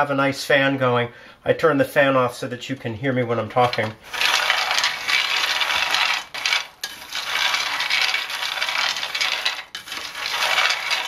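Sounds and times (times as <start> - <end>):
beans rattling in a frying pan: 3.6 - 11.0.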